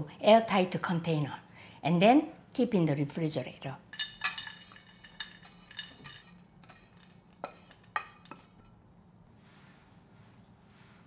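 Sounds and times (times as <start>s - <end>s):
spatula scraping metal pan: 3.9s - 8.7s
ringing metal clink: 3.9s - 8.8s
pan knocking against metal bowl: 4.0s - 8.7s.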